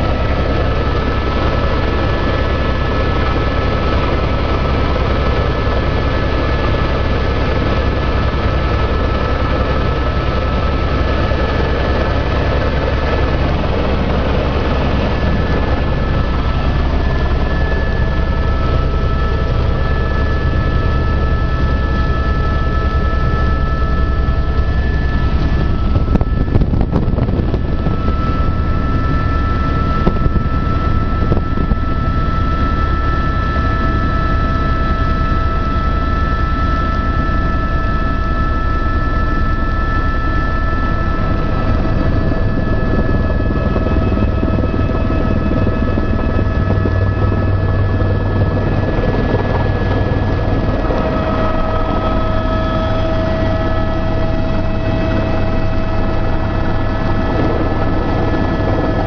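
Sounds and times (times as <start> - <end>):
helicopter cabin drone: 0.0 - 59.0.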